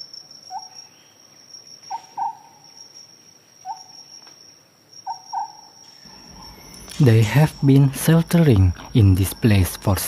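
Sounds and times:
high insect trill: 0.0s - 10.0s
bird hooting: 1.9s - 2.7s, 3.6s - 4.0s, 5.0s - 7.0s.

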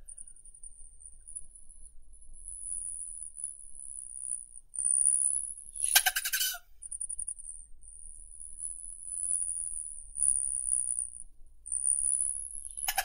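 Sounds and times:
hummingbird rattling chatter call: 5.8s - 6.6s, 12.7s - 13.0s.

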